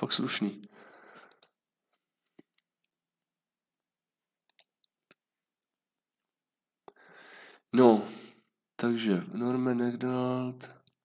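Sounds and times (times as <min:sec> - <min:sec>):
faint computer mouse clicks: 0:04.5 - 0:04.9.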